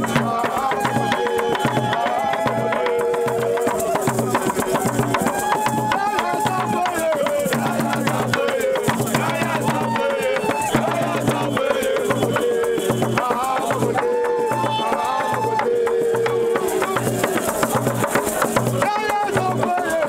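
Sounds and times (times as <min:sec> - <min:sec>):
rattling percussion: 0:00.0 - 0:20.0
song with held sung notes: 0:07.3 - 0:17.9.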